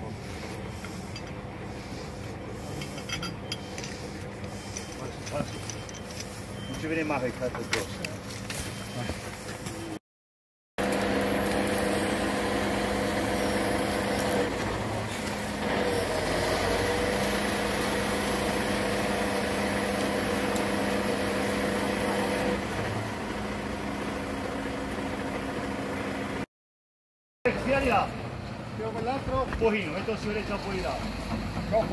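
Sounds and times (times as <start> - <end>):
truck engine humming: 0.0 - 8.5, 10.9 - 26.4.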